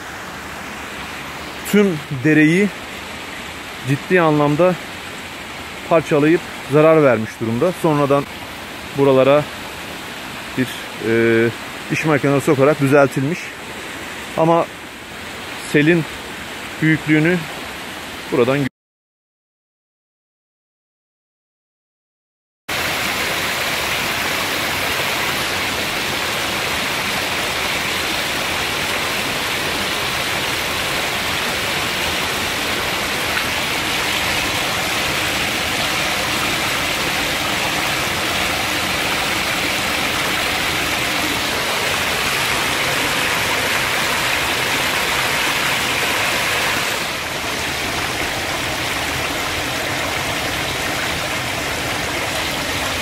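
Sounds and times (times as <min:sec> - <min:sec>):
water rushing over screen: 0:22.7 - 0:53.0.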